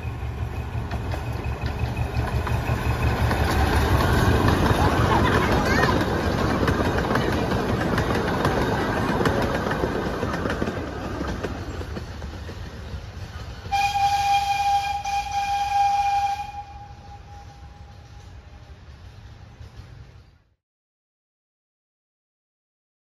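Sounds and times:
train cars clicking on rails: 0.0 - 20.5
train horn: 13.7 - 18.4.

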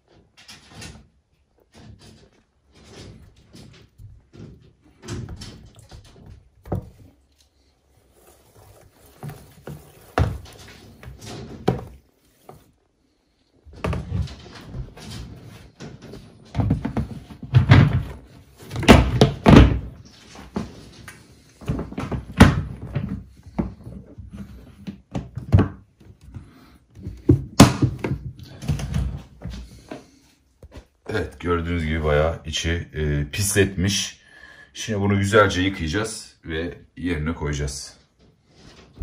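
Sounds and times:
plastic tub knocks and thuds: 9.1 - 12.6, 16.5 - 20.7, 27.0 - 29.4.

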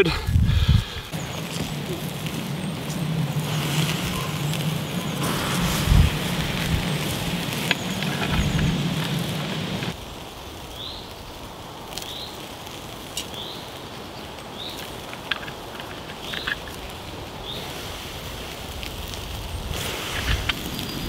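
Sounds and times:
burgers sizzling on a grill: 0.0 - 21.0
bird chirping: 1.1 - 9.9.

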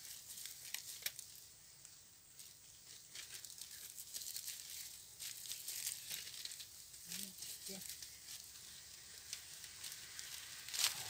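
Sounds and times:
faint high hiss: 0.0 - 11.0
wire-mesh trap rustling and clicking: 3.1 - 11.0.

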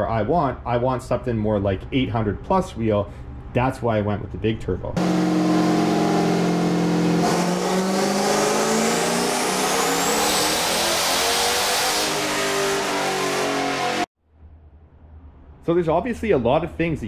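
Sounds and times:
turbocharged engine revving: 5.0 - 14.1.

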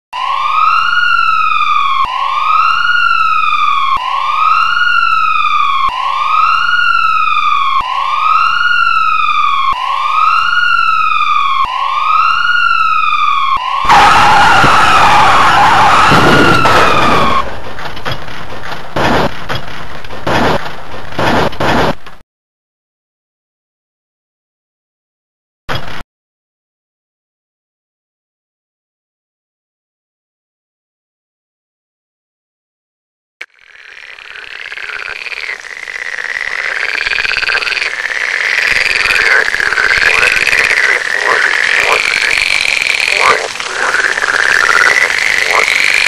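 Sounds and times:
ambulance siren wailing: 0.1 - 17.6
loud burst of noise: 13.7 - 17.6, 35.0 - 46.0
knocks and rattles: 17.5 - 22.2.

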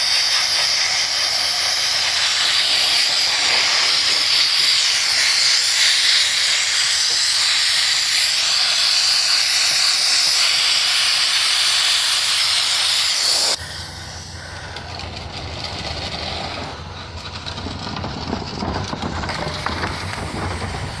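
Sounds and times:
sandblaster hissing against metal: 0.0 - 15.4
low rumbling noise: 13.4 - 21.0.

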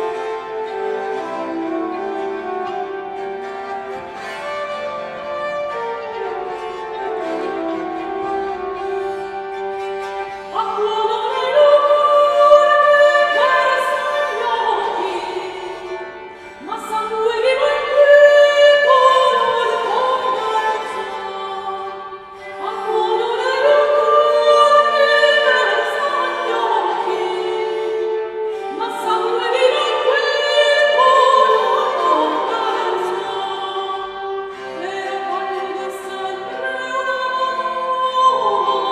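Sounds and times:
bowed bass instrument: 0.0 - 38.9
woman singing: 10.5 - 16.0, 16.6 - 38.9.

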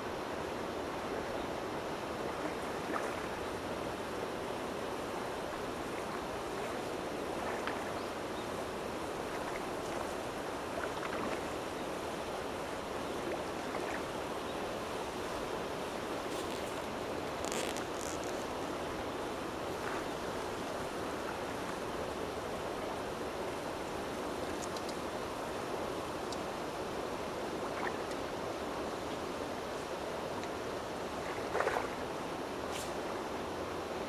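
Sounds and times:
flowing water rushing: 0.0 - 34.0
faint ticks: 24.5 - 25.0.

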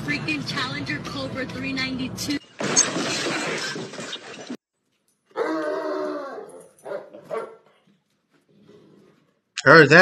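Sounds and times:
dog howling: 5.4 - 7.6.

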